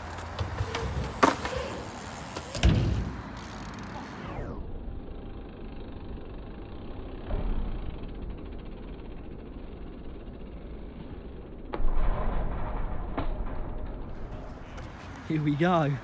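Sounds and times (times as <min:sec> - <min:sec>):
low outdoor rumble: 0:00.0 - 0:16.0
bike landing thump on concrete: 0:00.2 - 0:03.7, 0:07.2 - 0:08.2.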